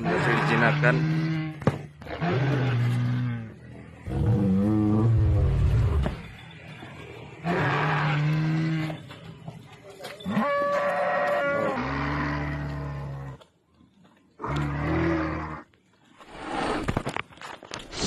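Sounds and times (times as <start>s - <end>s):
low moo-like bellows: 0.0s - 6.2s, 7.4s - 9.2s.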